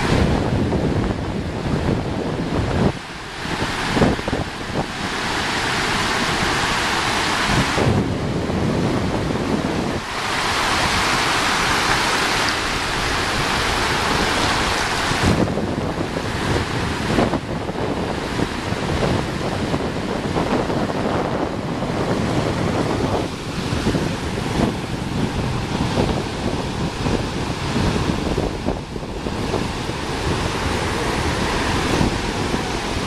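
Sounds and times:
ocean surf breaking: 0.0s - 33.0s
wind buffeting microphone: 0.0s - 33.0s.

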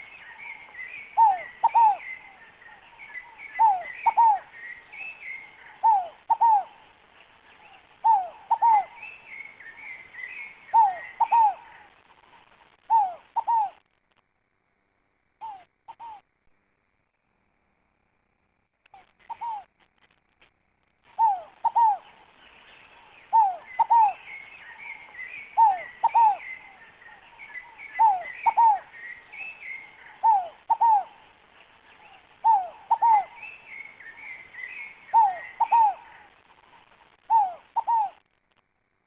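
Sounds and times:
dove cooing: 0.0s - 6.8s, 7.6s - 12.0s, 12.8s - 13.8s, 15.4s - 16.2s, 19.0s - 19.7s, 21.1s - 22.3s, 23.0s - 31.3s, 31.9s - 38.2s
small birds chirping: 0.0s - 13.9s, 18.8s - 20.2s, 21.0s - 38.5s.

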